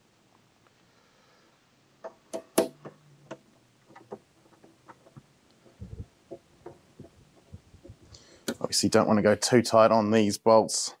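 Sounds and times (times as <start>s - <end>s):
sharp knock: 2.0s - 2.9s.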